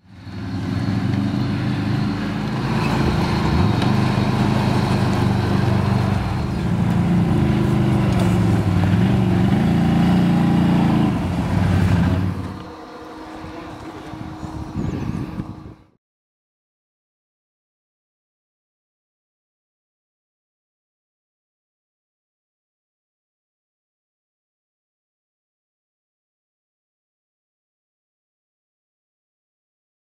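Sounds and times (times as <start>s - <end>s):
atv engine running under throttle: 0.0s - 15.8s.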